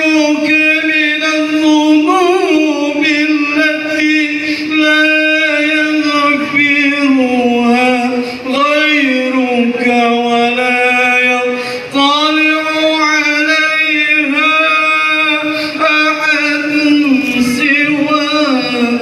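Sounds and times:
man chanting: 0:00.0 - 0:19.0.

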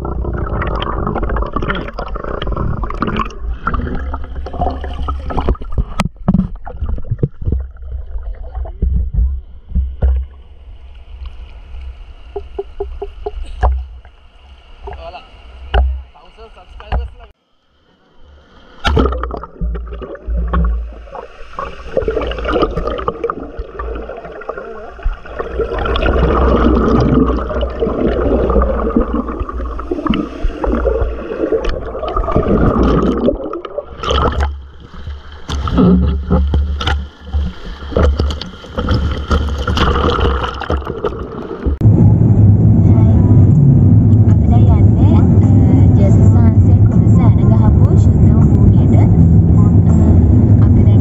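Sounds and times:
water sloshing and gurgling: 0:00.0 - 0:51.0
sharp splashes or knocks: 0:14.8 - 0:16.1, 0:18.7 - 0:41.8
wind rumble on microphone: 0:41.7 - 0:51.0.

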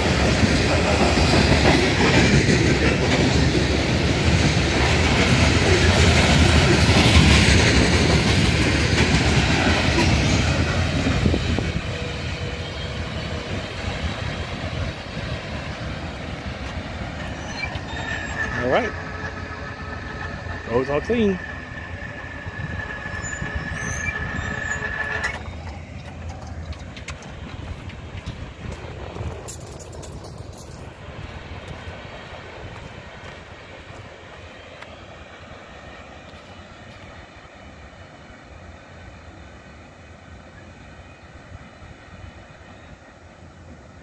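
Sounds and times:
freight train wheels on rails: 0:00.0 - 0:44.0
railroad crossing bell ringing: 0:17.2 - 0:26.4.

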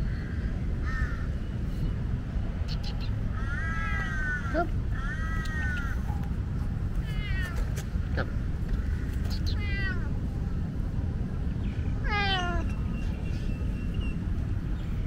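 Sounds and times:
cat meowing loudly: 0:07.0 - 0:07.8, 0:09.4 - 0:10.2, 0:12.0 - 0:12.7.

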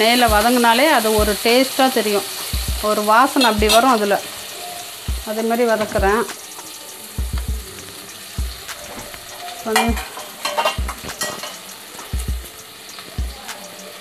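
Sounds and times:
onions sizzling in a pan: 0:00.0 - 0:14.0
spoon knocking against pan: 0:08.4 - 0:12.6
spoon scraping a pan: 0:08.9 - 0:13.1.

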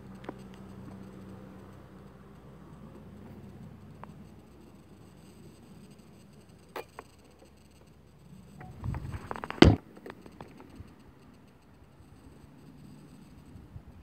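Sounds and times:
microphone handling clicks: 0:08.6 - 0:10.8
rubbing against microphone: 0:08.7 - 0:09.8.

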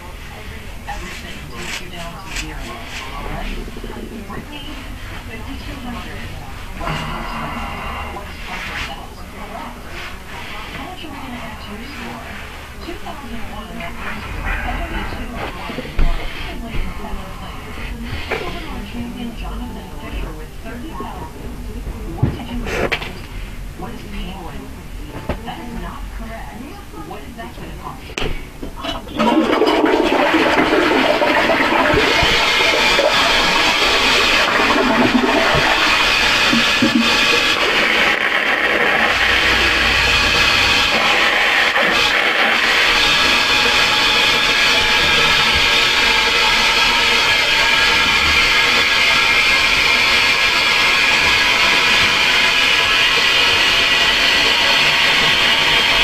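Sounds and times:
loud water-like rushing: 0:29.2 - 0:56.0
loud steady hissing: 0:29.5 - 0:56.0.

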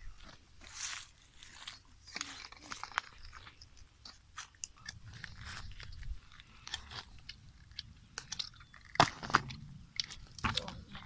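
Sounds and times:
snail shells clicking: 0:02.2 - 0:10.8.

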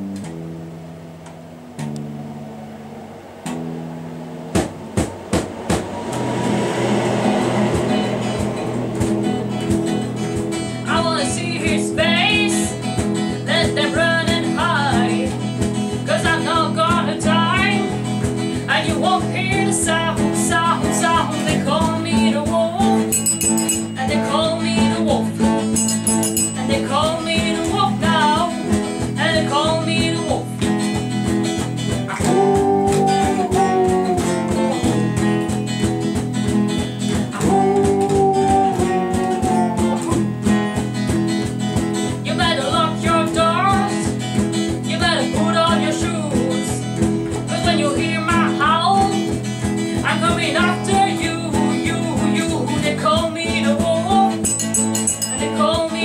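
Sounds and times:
lead guitar bent notes: 0:00.0 - 0:47.7
acoustic guitar strumming: 0:00.0 - 0:56.0
triangle strikes: 0:01.7 - 0:13.4, 0:23.0 - 0:28.0, 0:54.4 - 0:55.6.

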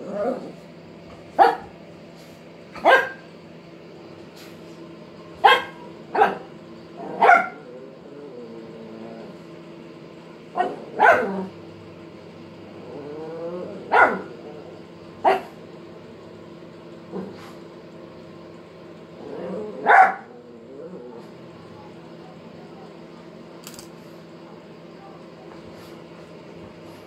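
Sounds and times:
dog barking: 0:01.4 - 0:01.7, 0:02.8 - 0:03.2, 0:05.4 - 0:07.7, 0:10.6 - 0:11.4, 0:13.9 - 0:14.4, 0:15.2 - 0:15.6, 0:19.8 - 0:20.4.

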